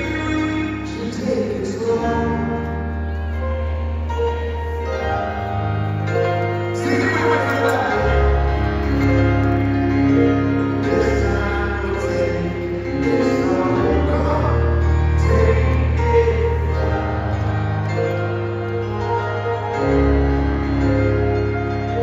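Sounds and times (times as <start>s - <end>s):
live band music: 0.0s - 22.0s
person singing: 6.7s - 9.0s, 10.8s - 19.2s.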